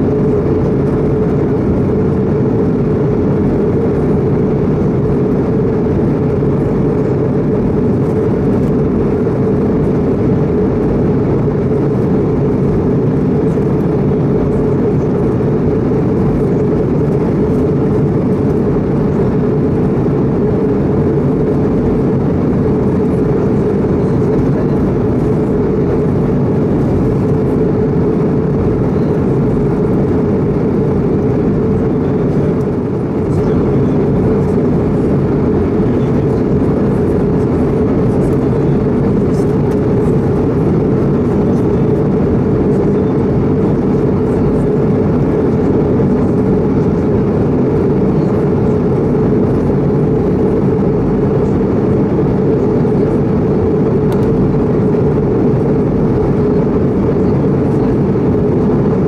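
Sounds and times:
airplane cabin engine and airflow noise: 0:00.0 - 0:59.0.

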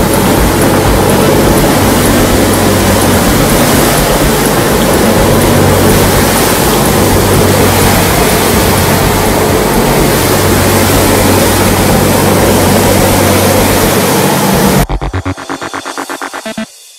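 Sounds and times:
rushing wind and water: 0:00.0 - 0:14.9
boat engine drone: 0:00.0 - 0:16.7.

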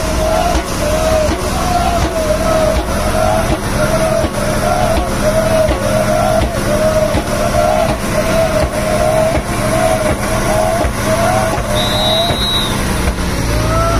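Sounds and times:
high steady tone: 0:00.0 - 0:13.0
boat rushing through water: 0:00.0 - 0:13.9
crew chanting in unison: 0:00.0 - 0:13.9.

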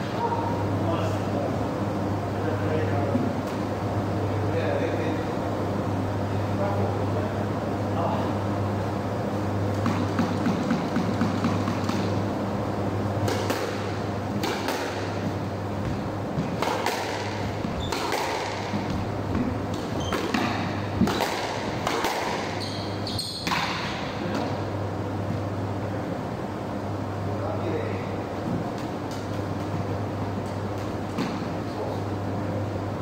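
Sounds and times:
squash ball hits: 0:09.7 - 0:12.2, 0:13.2 - 0:22.6, 0:23.3 - 0:24.5
shoes squeaking on wooden floor: 0:17.6 - 0:18.1, 0:18.8 - 0:20.4, 0:22.6 - 0:23.5.

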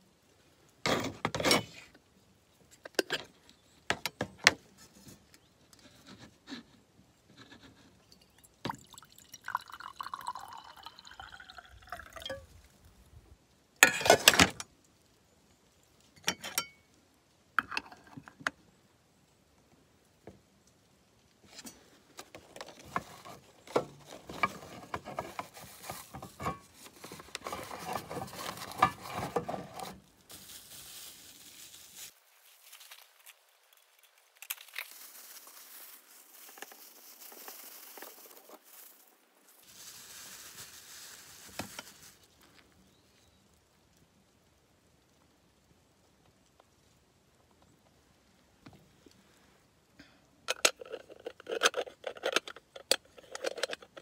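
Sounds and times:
water pouring into metal vessel: 0:08.4 - 0:12.4
plastic bag rustling: 0:22.3 - 0:42.8.

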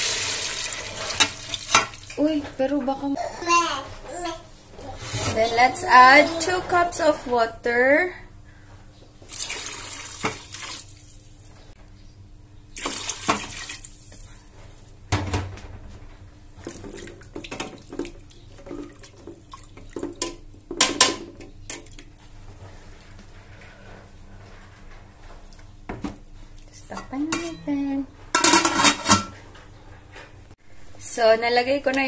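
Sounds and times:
water pouring into a metal pot: 0:00.0 - 0:02.1, 0:09.3 - 0:11.0
spoon clinking and scraping in pot: 0:27.0 - 0:27.6, 0:28.4 - 0:29.4.

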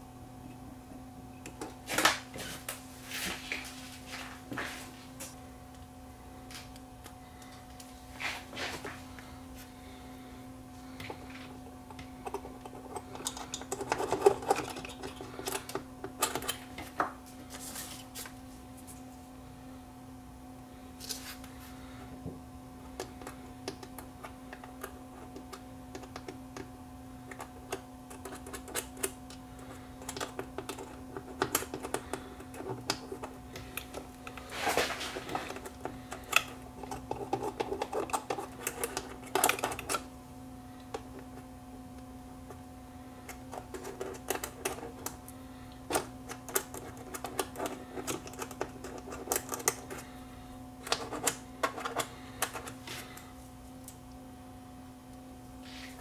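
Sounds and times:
steady hum: 0:00.0 - 0:56.0.

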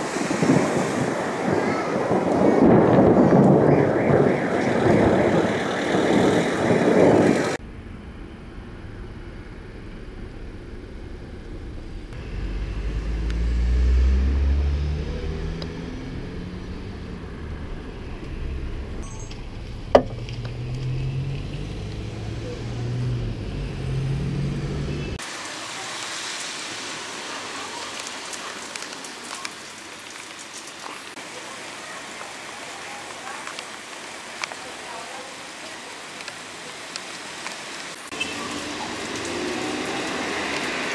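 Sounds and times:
rain hiss: 0:00.0 - 0:03.3, 0:12.0 - 0:19.2, 0:23.8 - 0:40.9
thunder rumbling: 0:00.0 - 0:24.3
vehicle engine hum: 0:07.4 - 0:25.3, 0:38.0 - 0:40.9.

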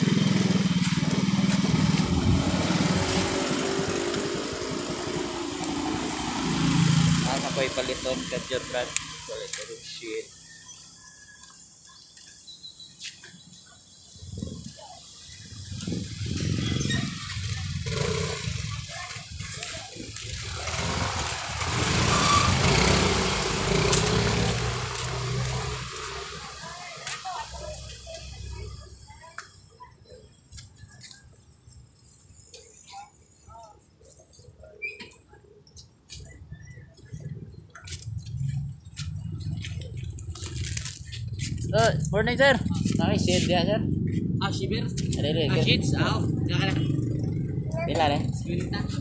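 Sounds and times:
small vehicle engine running: 0:00.0 - 0:10.9, 0:15.6 - 0:29.0
low traffic rumble: 0:00.0 - 0:49.0.

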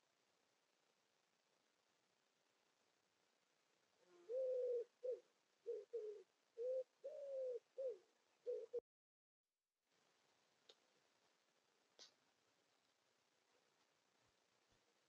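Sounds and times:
pigeon cooing: 0:04.0 - 0:08.8.

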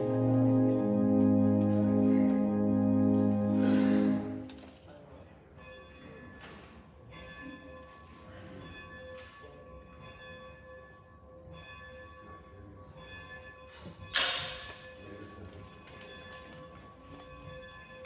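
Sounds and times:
church bells ringing: 0:00.0 - 0:04.6.

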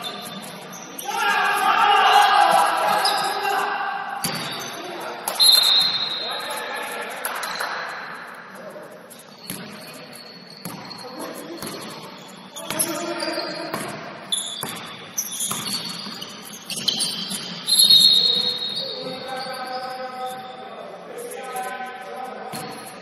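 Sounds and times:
players calling out: 0:00.7 - 0:08.1
basketball bouncing on court: 0:10.6 - 0:11.0, 0:13.7 - 0:17.6.

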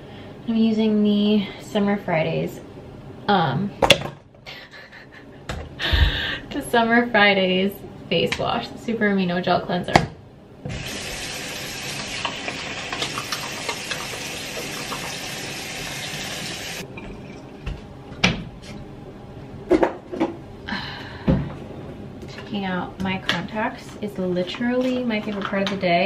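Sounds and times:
sink tap running: 0:10.7 - 0:17.4
face washing with wet hands: 0:10.7 - 0:17.6.

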